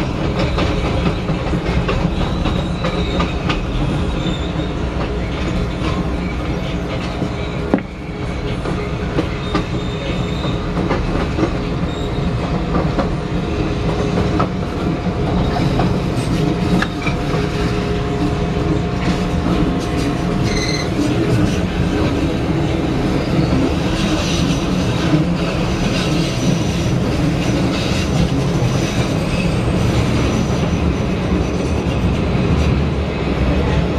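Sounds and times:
train rumbling on track: 0.0 - 33.9
high wheel squeals: 2.1 - 6.8, 7.4 - 10.7, 20.4 - 21.1.

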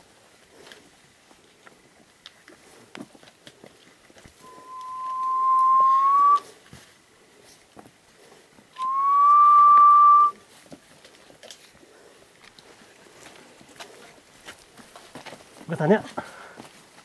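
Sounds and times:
person whistling long notes: 4.4 - 6.5, 8.8 - 10.4.

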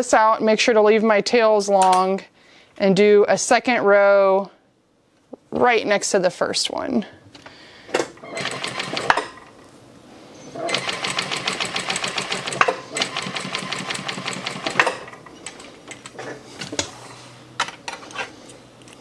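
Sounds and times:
sewing machine stitching: 8.2 - 9.5, 10.6 - 16.1.

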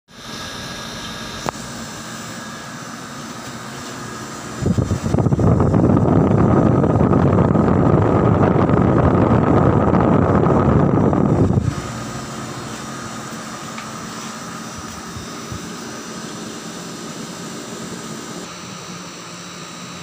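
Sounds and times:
air conditioner humming: 0.1 - 20.0
fan air rushing: 0.1 - 20.0
air conditioner click: 1.0 - 1.6, 12.7 - 15.7.

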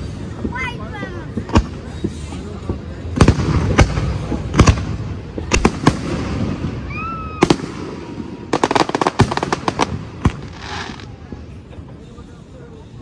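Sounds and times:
crackling firework pops: 1.3 - 11.5
firework shells bursting: 7.4 - 11.4.

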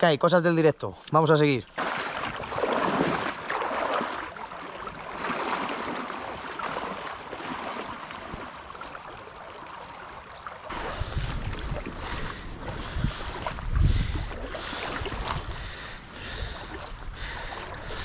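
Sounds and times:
boots splashing through water: 1.7 - 18.0
wind rumble on microphone: 10.7 - 18.0.

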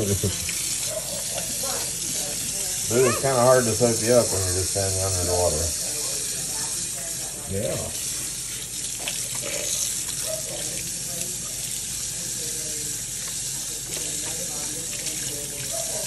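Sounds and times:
water splashing into sink: 0.0 - 4.2, 5.7 - 16.0
sink faucet running: 0.0 - 16.0.

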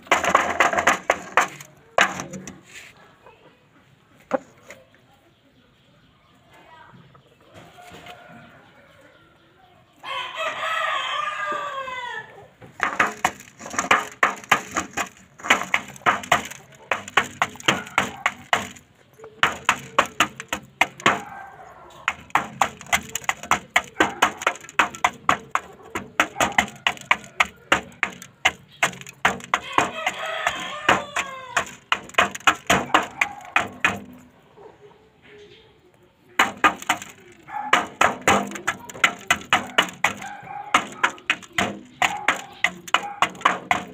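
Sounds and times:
rooster pecking metal pan: 0.0 - 2.8, 12.7 - 34.4, 36.4 - 43.9
rooster crowing: 7.6 - 9.4, 10.0 - 12.5, 29.6 - 31.8.

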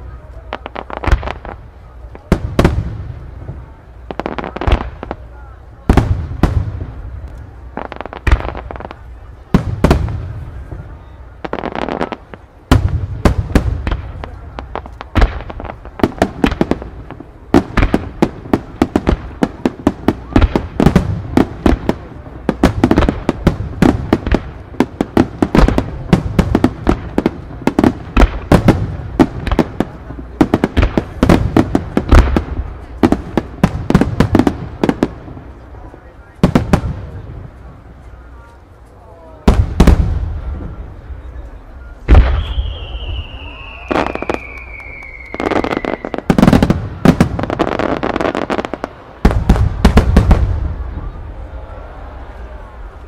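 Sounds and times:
firework shells bursting: 42.1 - 46.6.

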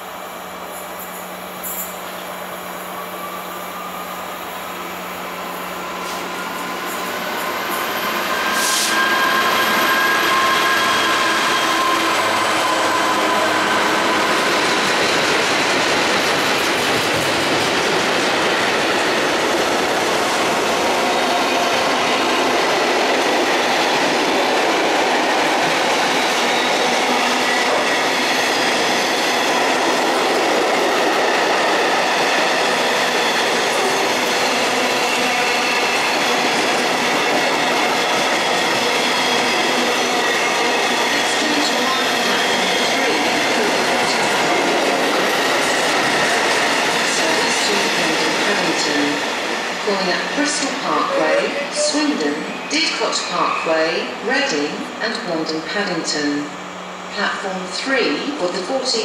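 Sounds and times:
diesel locomotive engine: 0.0 - 59.0
wheel squeal: 6.0 - 14.9.

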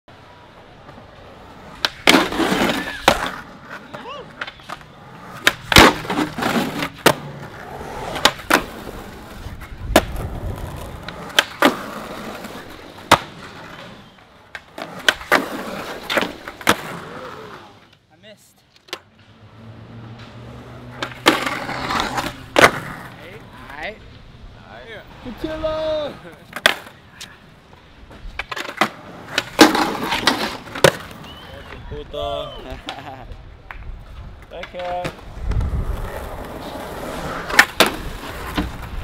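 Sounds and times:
skateboard wheels rolling on concrete: 0.1 - 39.0
skateboard trucks scraping ledge: 0.4 - 18.0, 18.7 - 24.0, 24.7 - 39.0
skateboard tail pops: 1.7 - 7.5, 8.1 - 17.0, 21.0 - 23.1, 26.5 - 27.4, 28.1 - 31.8, 32.8 - 36.6, 37.4 - 39.0
skateboard landings slapping: 1.7 - 13.6, 21.0 - 23.1, 34.7 - 39.0.

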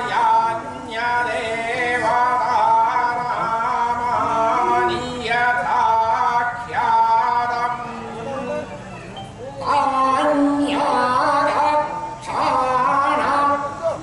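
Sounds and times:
man chanting: 0.0 - 8.7, 9.6 - 14.0.

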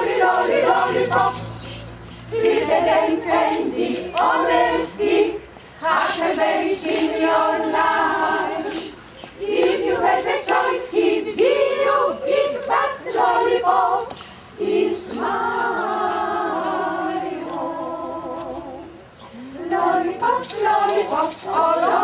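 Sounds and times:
choir singing a cappella: 0.0 - 22.0
singers breathing: 14.2 - 14.6.

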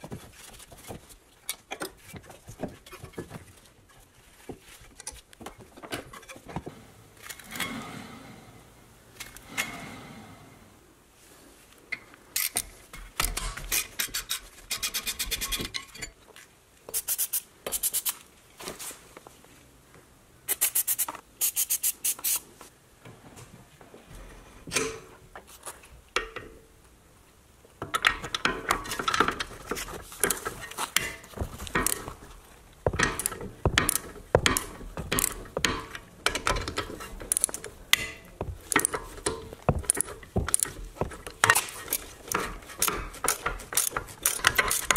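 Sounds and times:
hand ratchet clicking: 32.9 - 37.7, 38.5 - 44.9
metal tool clatter: 32.9 - 44.9.

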